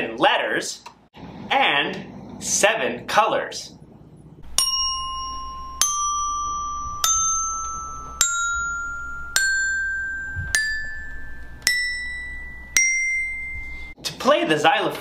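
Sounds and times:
xylophone notes ringing: 4.4s - 14.0s.

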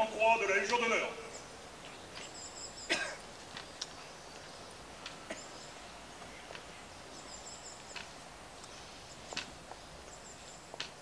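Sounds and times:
slow footsteps on stone: 3.3s - 5.4s, 6.2s - 6.7s, 7.7s - 11.0s
walking cane tapping on stone: 6.2s - 6.7s, 7.9s - 9.9s, 10.7s - 11.0s.

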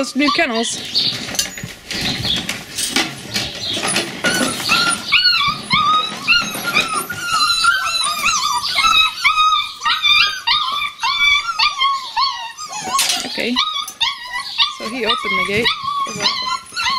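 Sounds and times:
puppies whining and yipping: 0.0s - 16.9s
tin cans clattering: 0.7s - 8.5s.

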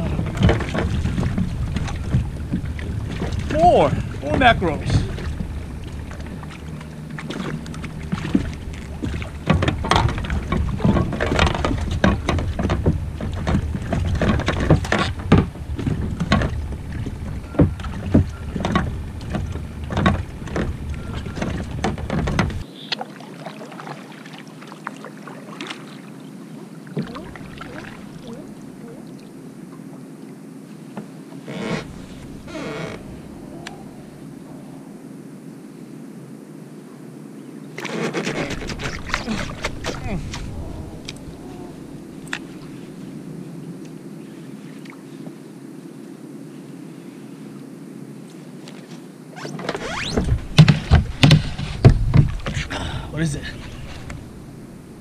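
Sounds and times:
knocks and clatters: 7.3s - 22.6s.

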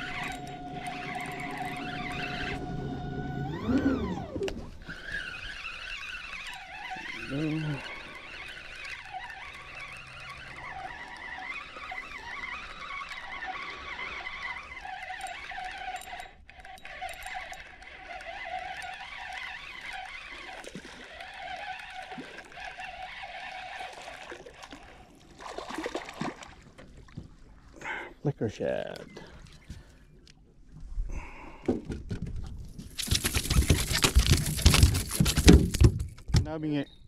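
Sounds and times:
fishing reel cranking: 0.0s - 25.0s, 33.0s - 35.4s
fish splashing in water: 18.3s - 27.2s, 32.9s - 35.8s.

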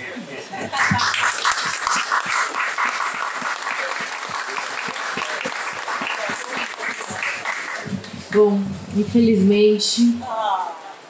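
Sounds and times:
audience applauding: 0.7s - 8.4s.

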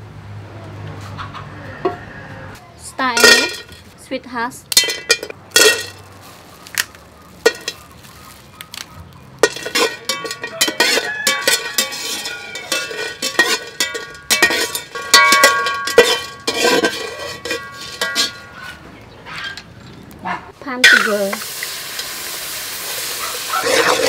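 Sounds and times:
metal spoon clinking in pot: 3.2s - 3.8s, 4.7s - 6.0s, 7.4s - 7.9s, 9.4s - 18.7s.

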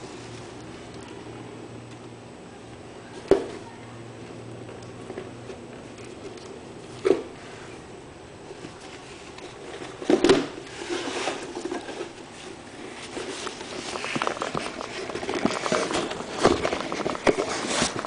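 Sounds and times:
cardboard box scraping and rustling: 10.7s - 18.0s.

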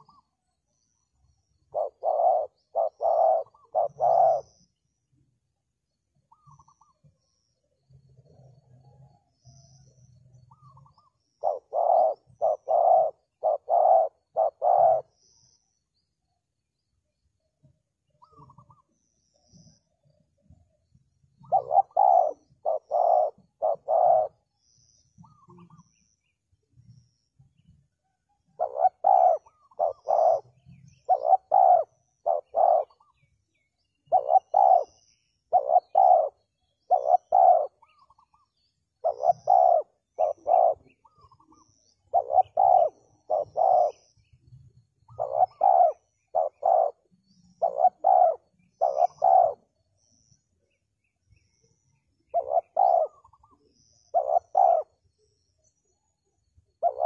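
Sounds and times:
dove cooing: 0.0s - 0.4s, 1.2s - 4.8s, 6.3s - 15.6s, 18.2s - 26.0s, 28.5s - 33.3s, 34.0s - 44.2s, 45.0s - 50.4s, 52.2s - 55.0s, 56.7s - 57.0s.

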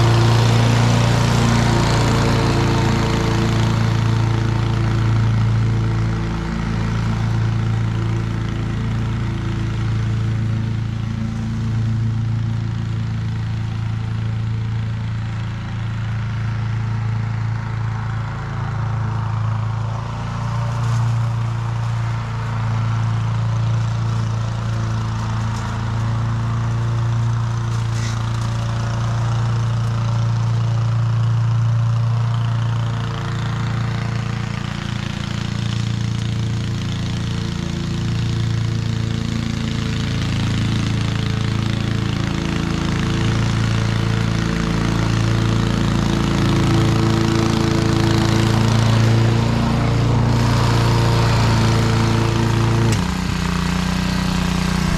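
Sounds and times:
lawn mower engine humming: 0.0s - 54.9s.

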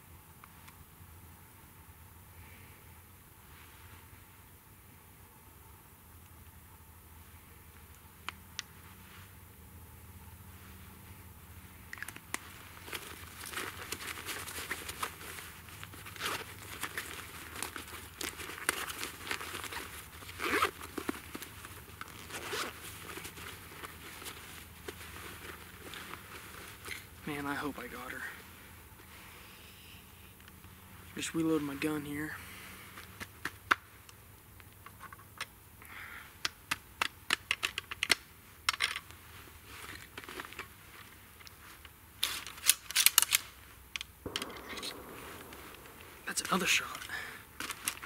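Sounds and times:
fabric pouch rustling: 12.8s - 27.2s.

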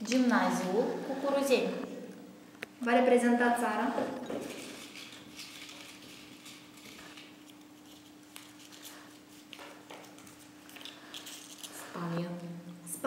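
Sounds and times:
faint steady hum: 0.0s - 13.0s
paper rustling: 4.4s - 12.1s.

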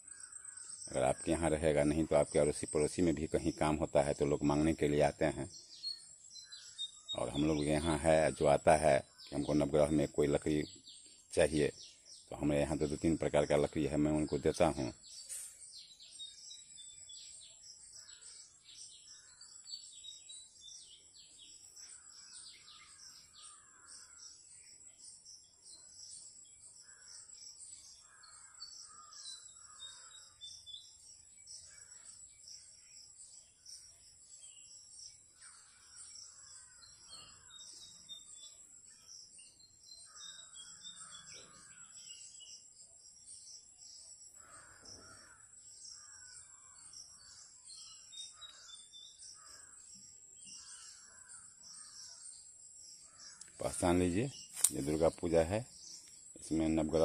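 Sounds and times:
crows cawing: 0.0s - 1.3s, 21.8s - 24.4s, 28.0s - 30.6s, 31.7s - 32.1s, 35.4s - 37.8s, 40.1s - 42.1s, 44.4s - 52.2s, 53.0s - 53.7s
small birds chirping: 0.0s - 57.0s.

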